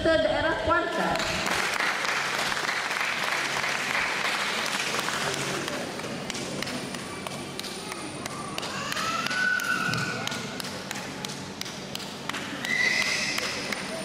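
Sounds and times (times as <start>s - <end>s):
audience applause: 1.2s - 6.1s.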